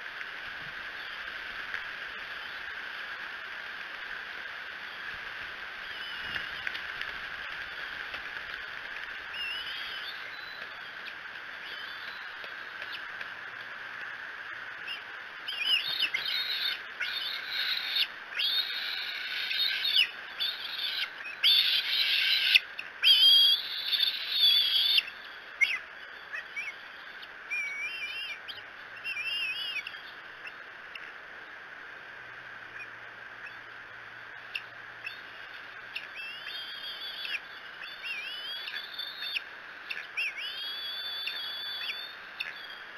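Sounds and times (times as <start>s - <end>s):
eaglets chittering whistles: 5.8s - 6.8s, 9.2s - 13.1s, 14.8s - 30.6s, 34.5s - 42.9s.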